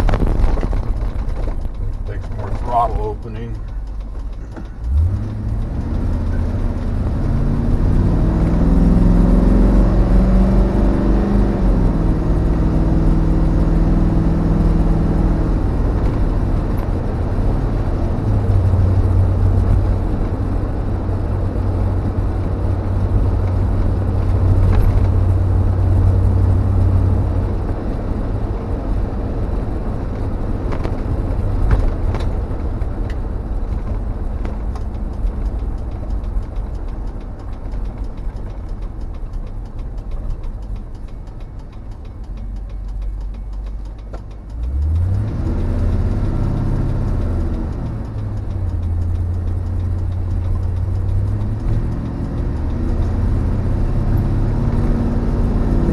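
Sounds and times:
road and wind noise: 0.0s - 55.9s
truck engine driving: 0.0s - 55.9s.

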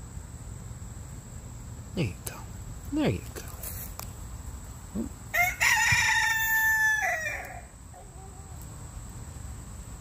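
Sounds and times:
rooster crowing: 5.3s - 8.6s.

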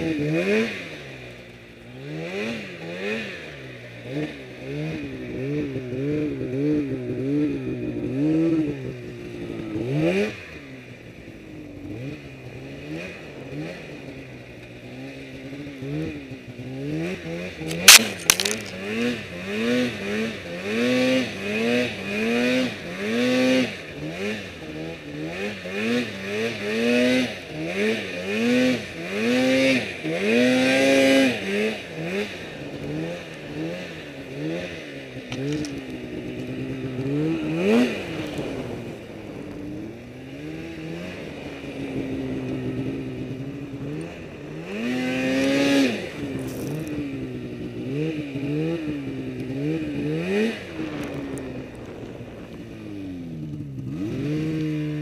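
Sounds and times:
snowmobile engine revving: 15.1s - 34.7s, 35.4s - 52.8s.

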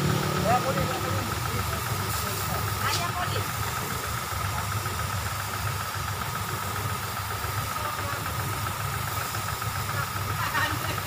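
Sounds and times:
motor pulsing: 0.0s - 11.0s
water jet spraying: 0.0s - 11.0s.

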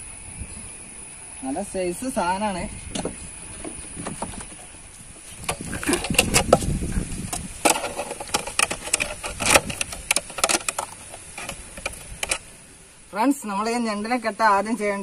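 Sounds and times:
knocks and scrapes on wooden boards: 3.0s - 12.4s.

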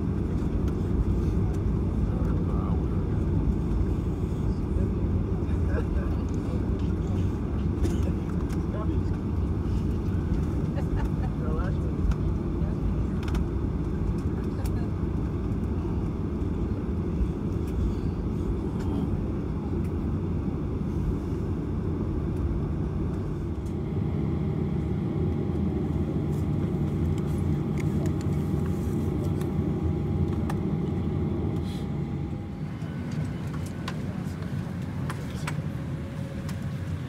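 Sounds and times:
jet cabin rumble: 0.0s - 37.0s.

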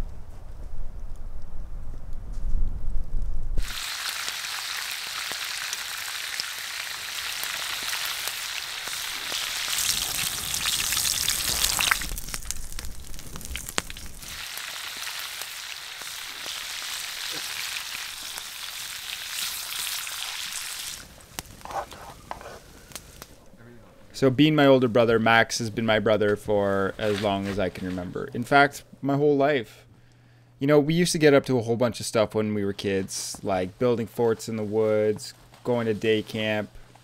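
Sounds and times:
low rumble: 0.0s - 3.6s
food sizzling in a frying pan: 3.6s - 21.6s.

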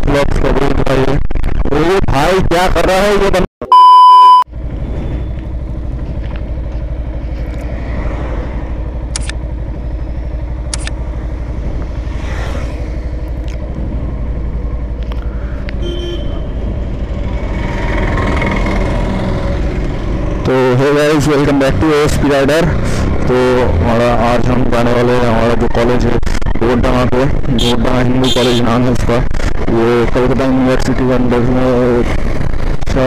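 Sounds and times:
wind: 0.0s - 33.0s
short high-pitched beeps: 3.6s - 4.5s
motorcycle engine running: 4.5s - 33.0s
traffic noise: 4.5s - 33.0s.

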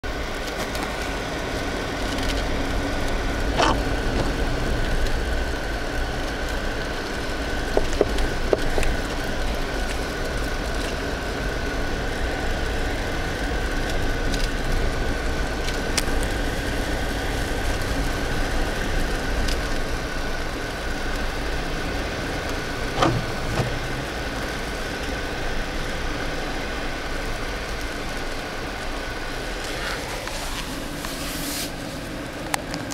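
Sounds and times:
car engine and tyres rumbling: 0.0s - 32.9s.

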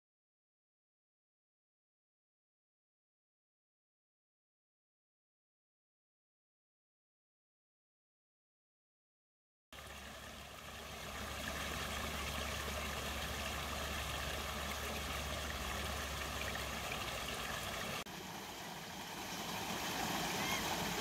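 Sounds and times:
stream water rushing over rocks: 9.8s - 21.0s.

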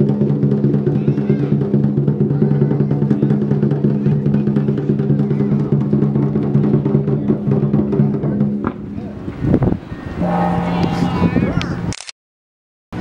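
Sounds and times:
drum beaten fast: 0.0s - 8.7s
hand-held gong ringing: 10.2s - 11.4s.

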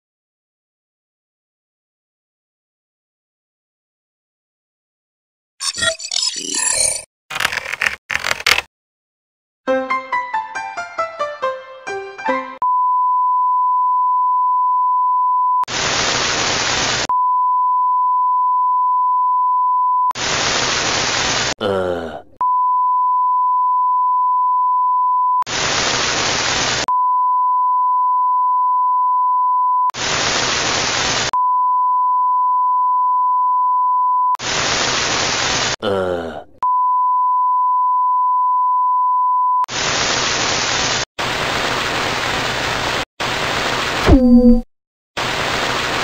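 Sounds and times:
bursts of hiss: 15.7s - 17.1s, 20.2s - 21.6s, 25.5s - 26.8s, 30.0s - 31.3s, 34.4s - 35.8s
high beep tone: 44.1s - 44.6s.

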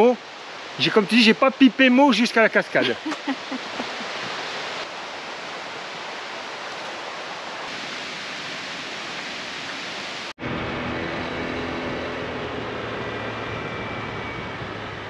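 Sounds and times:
waterfall roaring: 0.0s - 12.6s
low hum: 10.4s - 15.0s.

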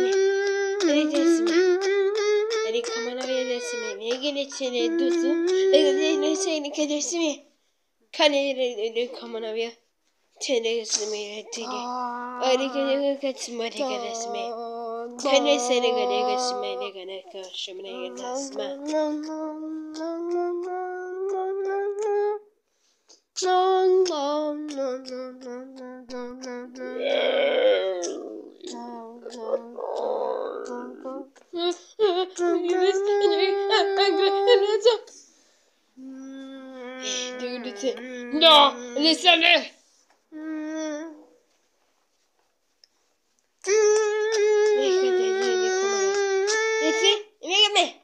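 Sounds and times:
person humming: 0.0s - 6.9s, 11.0s - 13.1s, 13.8s - 17.0s, 17.9s - 22.5s, 23.4s - 35.0s, 36.0s - 39.1s, 40.3s - 41.4s, 43.6s - 47.0s
child singing: 0.0s - 7.4s, 10.9s - 22.5s, 23.4s - 35.2s, 36.0s - 39.5s, 43.6s - 47.8s.

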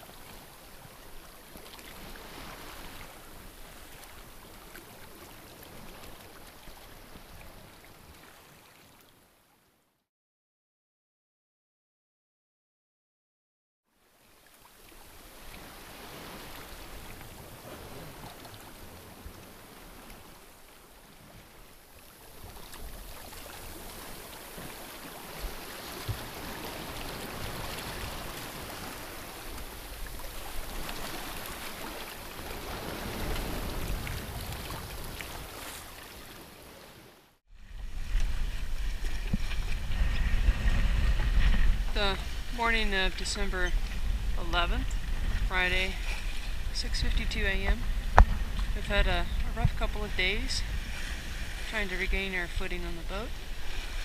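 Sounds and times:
waves and water rushing along hull: 0.0s - 9.9s, 13.9s - 54.0s
wind buffeting microphone: 22.4s - 35.9s, 37.6s - 54.0s
low rumble: 37.5s - 51.0s.

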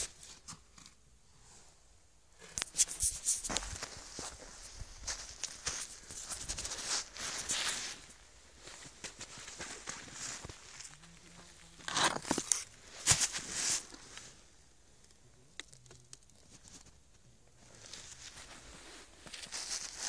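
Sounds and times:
hands scraping through snow: 2.7s - 8.1s, 12.9s - 14.3s, 18.2s - 20.0s.

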